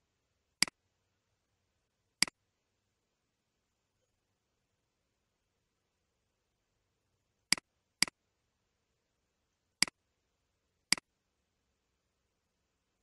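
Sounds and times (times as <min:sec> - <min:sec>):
mouse button clicking: 0:07.5 - 0:08.2.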